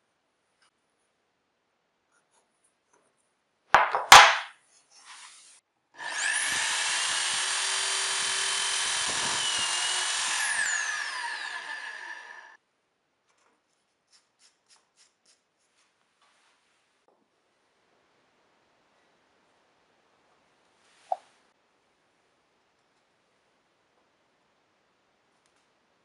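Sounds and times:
power drill boring wood: 0:06.0 - 0:12.6.

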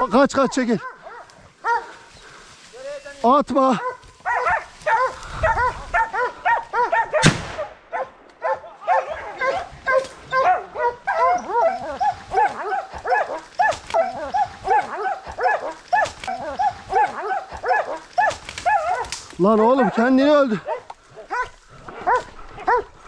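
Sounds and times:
hunting dogs barking: 0:00.0 - 0:02.4, 0:03.6 - 0:23.0
sharp crack: 0:07.1 - 0:08.4, 0:17.9 - 0:19.4.

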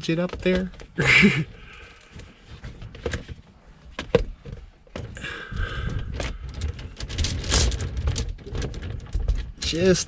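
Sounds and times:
anchor chain links clinking: 0:06.6 - 0:09.2.

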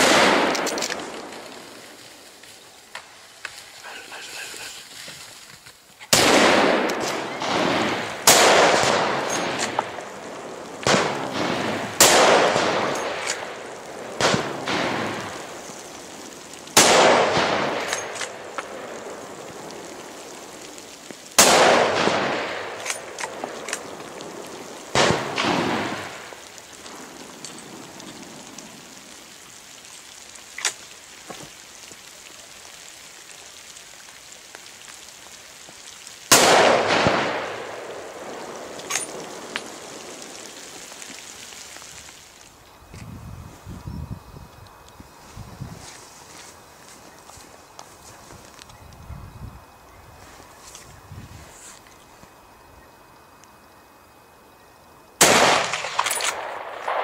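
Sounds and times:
rifle shots with rolling echo: 0:00.0 - 0:02.2, 0:06.1 - 0:28.8, 0:36.3 - 0:41.1, 0:55.2 - 0:57.0.

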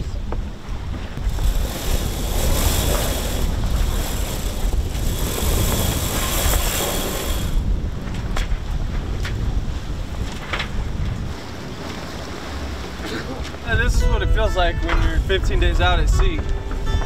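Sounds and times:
wind buffeting microphone: 0:00.0 - 0:17.0
sailcloth rustling: 0:01.0 - 0:08.7.

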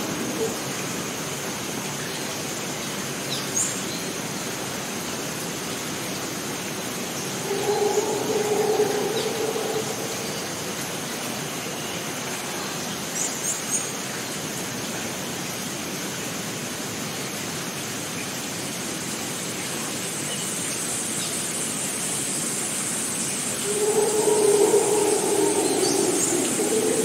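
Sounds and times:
rushing stream water: 0:00.0 - 0:20.9
high-pitched whine: 0:07.0 - 0:11.2, 0:23.6 - 0:27.0.

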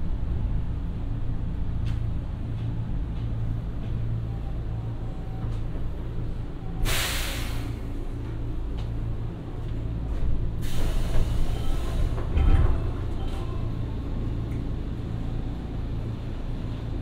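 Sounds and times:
train equipment humming: 0:00.0 - 0:17.0
compressed-air hiss: 0:06.8 - 0:07.8.

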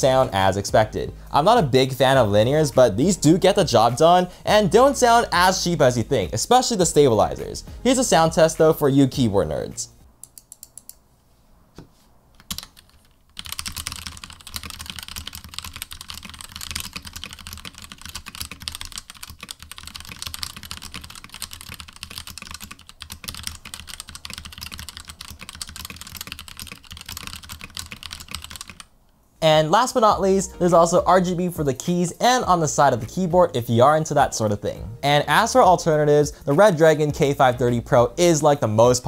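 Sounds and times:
fast typing on mechanical keyboard: 0:12.4 - 0:28.9.

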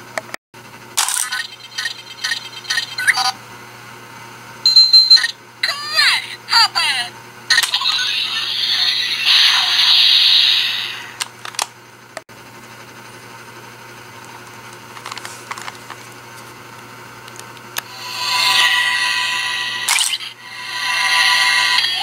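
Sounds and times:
toy electronic hissing effect: 0:07.5 - 0:11.2, 0:17.8 - 0:22.0.

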